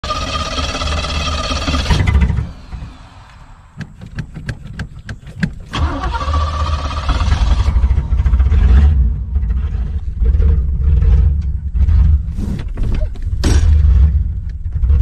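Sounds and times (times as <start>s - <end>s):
engine starter cranking: 0.0s - 9.0s
car engine running and revving: 6.4s - 15.0s.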